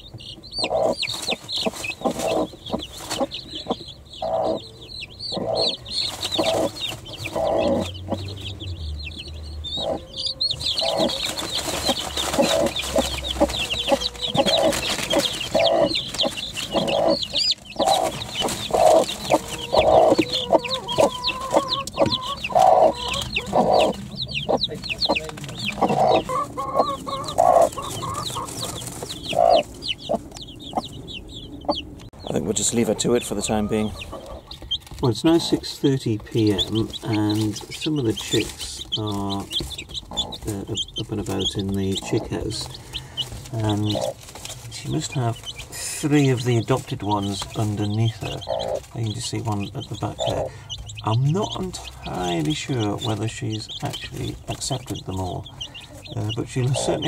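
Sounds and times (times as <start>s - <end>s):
chicks peeping: 0.0s - 57.0s
hen clucking: 0.0s - 57.0s.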